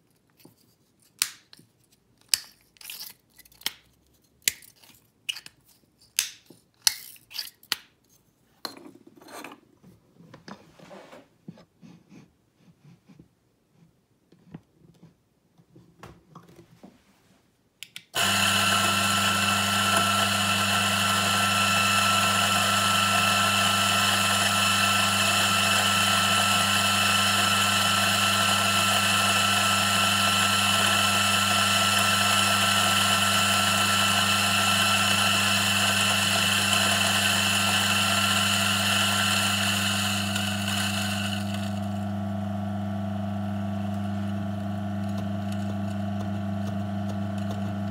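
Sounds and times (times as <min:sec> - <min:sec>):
electric coffee grinder whirring: 0:18.2 - 0:47.9
low motor hum: 0:18.2 - 0:47.9.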